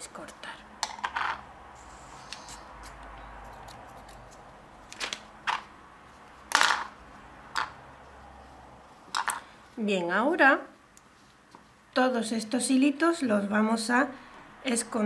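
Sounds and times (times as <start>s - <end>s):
scissors snipping yarn: 2.3s - 4.5s.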